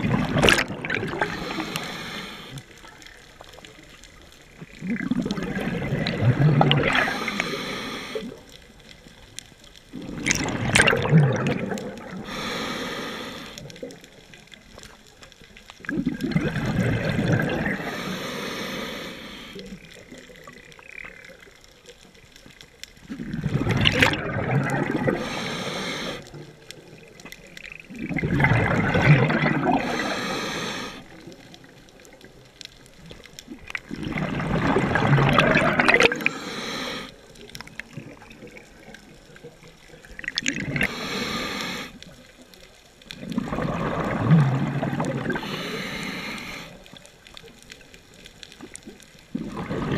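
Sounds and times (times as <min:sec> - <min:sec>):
exhaled bubbles gurgling underwater: 0:00.0 - 0:49.9
regulator hiss: 0:01.2 - 0:02.6, 0:12.3 - 0:13.7, 0:25.2 - 0:26.3, 0:29.8 - 0:31.2, 0:36.2 - 0:37.2, 0:40.8 - 0:42.0, 0:45.4 - 0:46.9.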